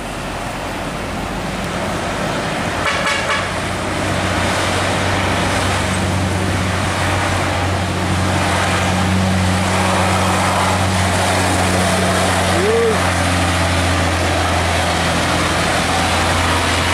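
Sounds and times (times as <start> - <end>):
road traffic noise: 0.0 - 16.9
truck diesel engine: 0.0 - 16.9
horn toot: 2.8 - 3.6.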